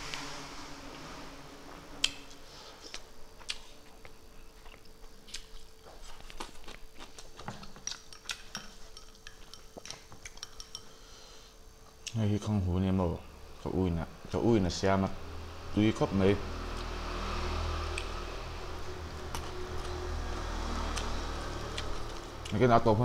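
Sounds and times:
faint steady hum: 0.0s - 23.0s
metal spoon clicking on dishes: 8.1s - 10.9s.

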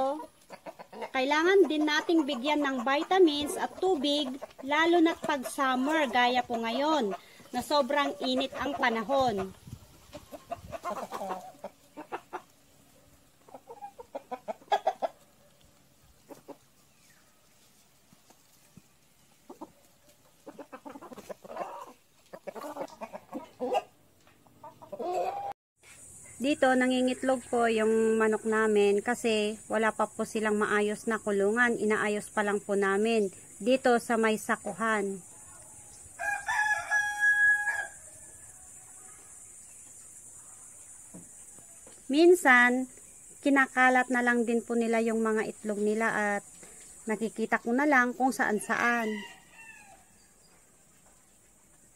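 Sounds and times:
chickens clucking: 0.0s - 37.2s
rooster crowing: 36.2s - 38.4s, 48.5s - 50.2s.

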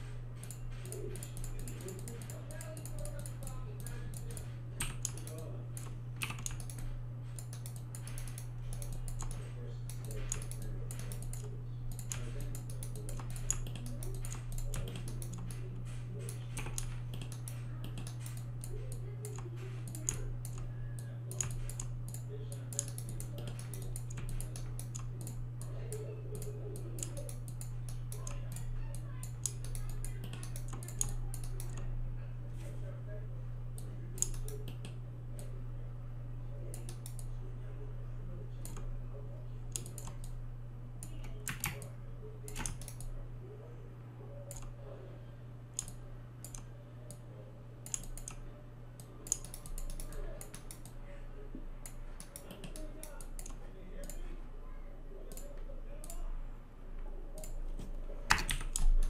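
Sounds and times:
steady low hum: 0.0s - 59.0s
keyboard keystrokes: 0.4s - 20.7s, 21.3s - 31.9s, 41.0s - 43.1s, 57.4s - 59.0s.

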